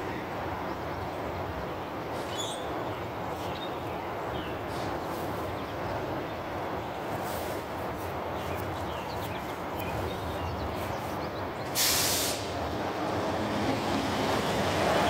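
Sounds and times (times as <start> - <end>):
air brake hiss: 11.7 - 12.6.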